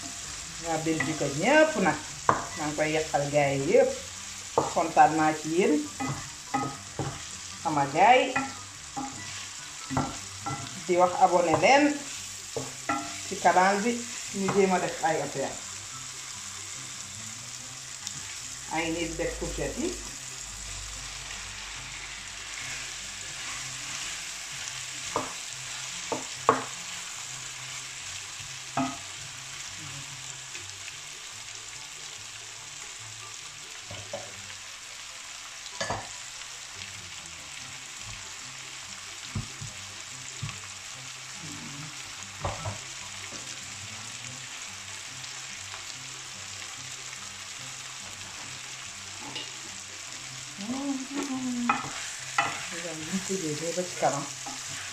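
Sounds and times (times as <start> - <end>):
food sizzling in a pan: 0.0 - 54.9
wooden spatula knocking on pan: 2.3 - 2.6, 26.1 - 26.7.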